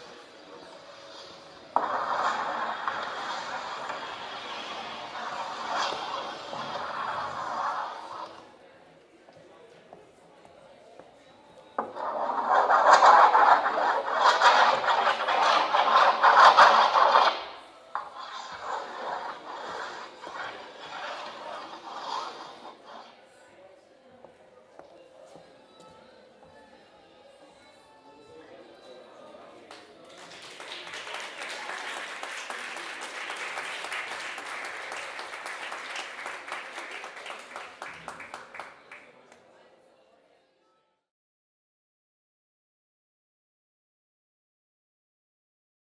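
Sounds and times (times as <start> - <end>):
hands scratching on paper: 0.9 - 8.4, 11.8 - 23.1
crowd applauding: 30.1 - 39.1.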